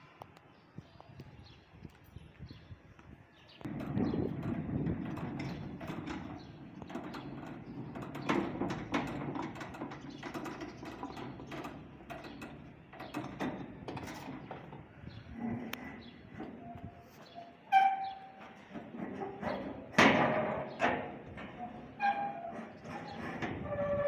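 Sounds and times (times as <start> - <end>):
metal latch clicks: 3.6 - 14.9
metal sliding gate rumbling: 3.7 - 24.0.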